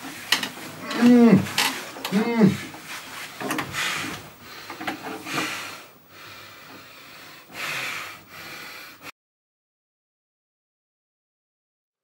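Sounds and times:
person breathing heavily: 0:00.8 - 0:09.1.

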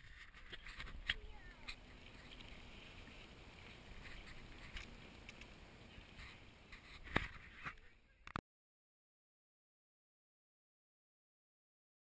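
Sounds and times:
wind rumbling on microphone: 0:00.0 - 0:07.8
faint clicks: 0:00.4 - 0:08.4.

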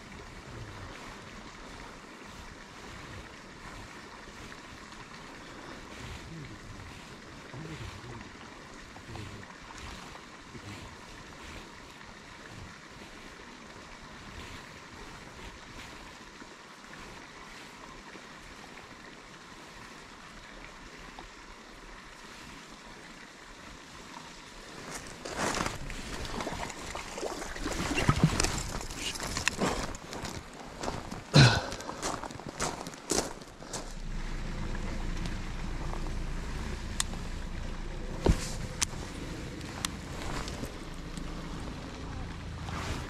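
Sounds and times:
steady outdoor hiss: 0:00.0 - 0:43.0
rustles and knocks near microphone: 0:38.1 - 0:40.8.

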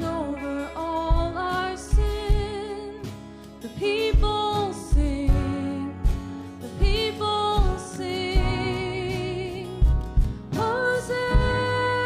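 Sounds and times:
woman singing with vibrato: 0:00.0 - 0:09.9, 0:10.5 - 0:12.0
live band playing: 0:00.0 - 0:12.0
kick drum thumping: 0:04.1 - 0:08.8, 0:09.8 - 0:10.7.

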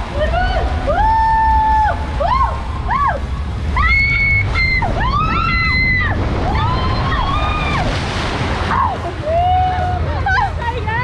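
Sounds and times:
water rushing: 0:00.0 - 0:11.0
people screaming: 0:00.9 - 0:08.0
hissing splash: 0:02.0 - 0:09.1.

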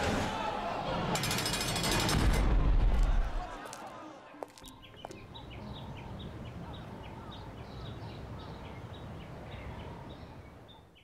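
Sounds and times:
birds chirping: 0:04.5 - 0:11.0.

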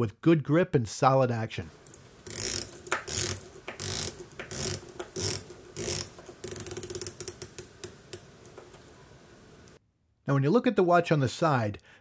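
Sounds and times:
watch bezel ratcheting clicks: 0:01.7 - 0:08.6.

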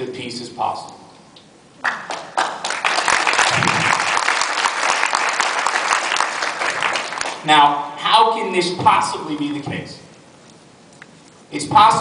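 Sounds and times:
audience applauding: 0:01.8 - 0:07.5.

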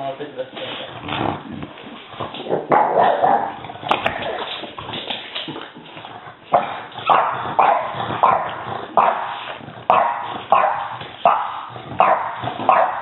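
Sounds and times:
puppy barking and yipping: 0:09.9 - 0:13.0.

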